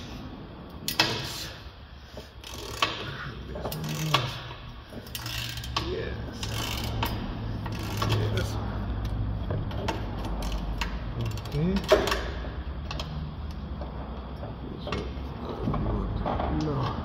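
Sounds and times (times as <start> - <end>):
ratchet wrench clicking: 2.2 - 13.9.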